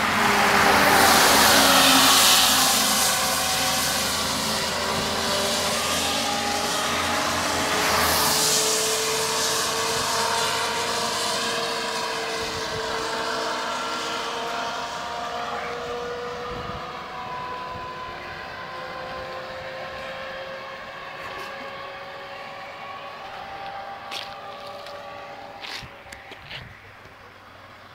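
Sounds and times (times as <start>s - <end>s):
rushing noise: 0.0s - 27.8s
vehicle engine droning: 0.0s - 27.9s.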